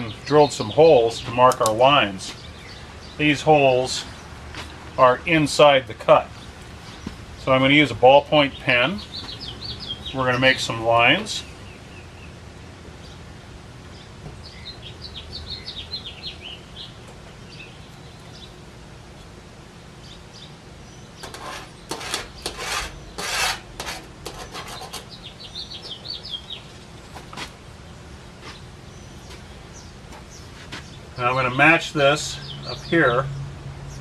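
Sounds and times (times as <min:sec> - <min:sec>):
pen scratching on sheet metal: 0:21.2 - 0:25.1.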